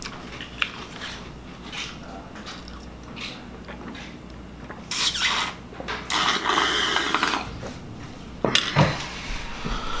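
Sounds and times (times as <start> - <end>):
person slurping milk: 4.9 - 7.8.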